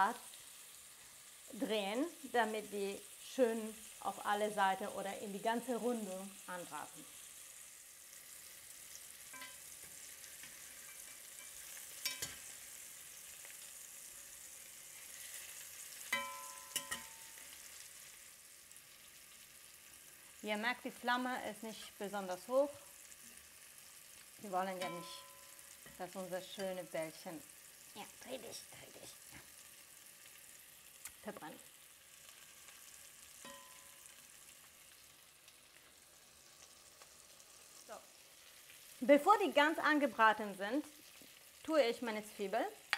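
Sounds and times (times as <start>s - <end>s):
meatballs sizzling in frying pan: 0.0s - 42.9s
utensil clinking against pan: 16.1s - 17.3s, 33.4s - 34.0s.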